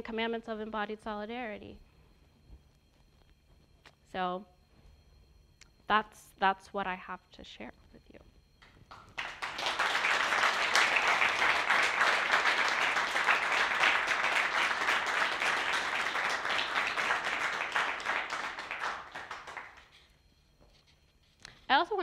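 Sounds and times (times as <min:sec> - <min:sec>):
audience applauding: 0:08.6 - 0:20.1.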